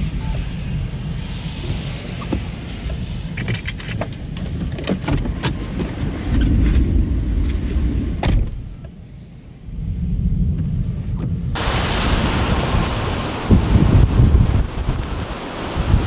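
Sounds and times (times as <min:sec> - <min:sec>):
wind rumble on microphone: 0:00.0 - 0:16.0
car passing on wet road: 0:11.6 - 0:16.0.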